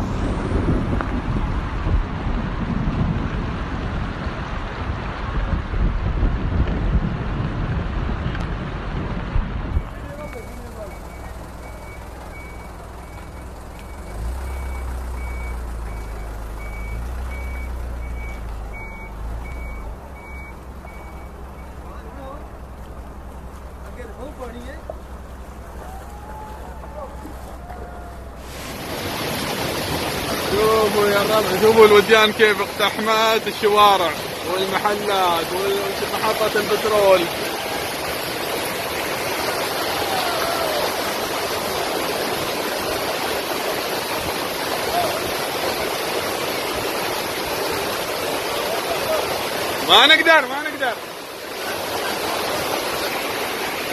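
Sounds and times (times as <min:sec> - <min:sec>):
low rumble: 0:00.0 - 0:10.7
steady rushing noise: 0:00.0 - 0:11.6, 0:22.6 - 0:53.9
reversing alarm beeping: 0:09.8 - 0:21.8.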